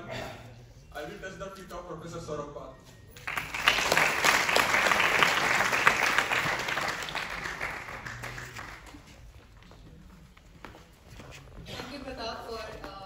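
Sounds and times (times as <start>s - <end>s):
audience applauding: 3.2s - 9.3s.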